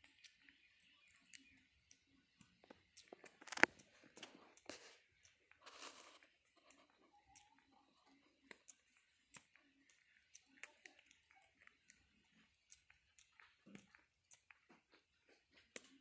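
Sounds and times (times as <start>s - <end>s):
monkey mouth clicks and smacks: 8.4s - 16.0s.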